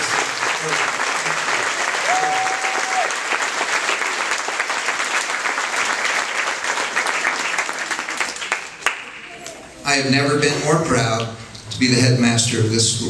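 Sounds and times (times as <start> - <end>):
crowd applauding: 0.0 - 9.6.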